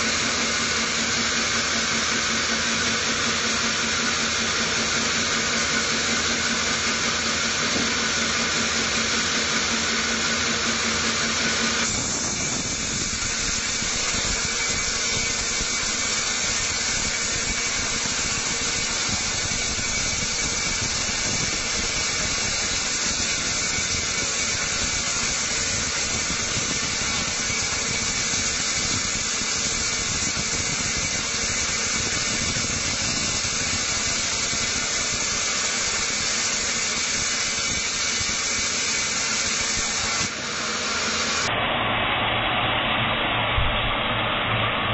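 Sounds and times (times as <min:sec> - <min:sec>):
band saw cutting wood: 0:00.0 - 0:41.5
low hum: 0:41.5 - 0:44.9.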